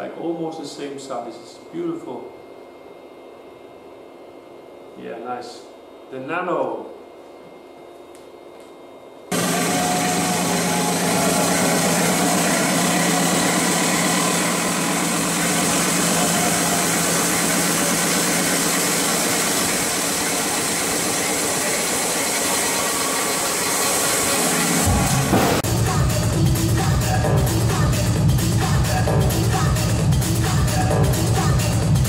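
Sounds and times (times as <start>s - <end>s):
concert crowd and sound system din: 9.3s - 32.0s.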